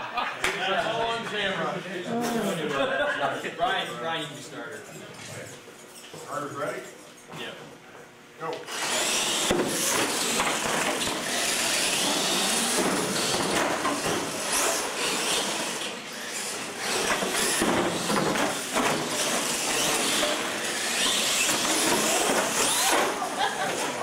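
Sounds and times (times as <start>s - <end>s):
electric motors whining: 8.6s - 24.0s.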